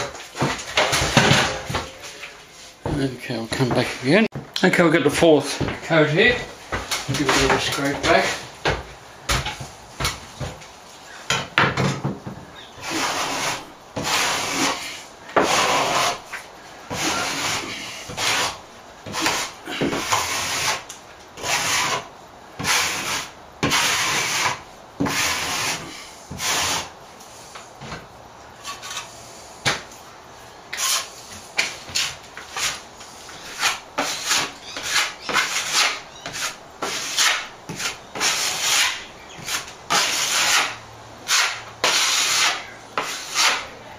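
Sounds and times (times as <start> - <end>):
steel blade scraping plaster: 12.8 - 16.2, 30.8 - 31.2, 32.0 - 43.7.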